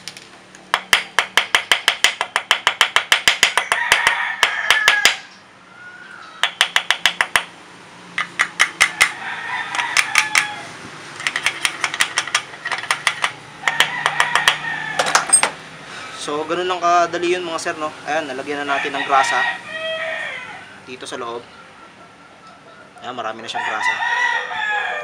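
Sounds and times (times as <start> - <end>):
hammer tapping steel punch: 0.7 - 5.2, 6.4 - 7.5, 8.2 - 9.2, 11.2 - 15.6.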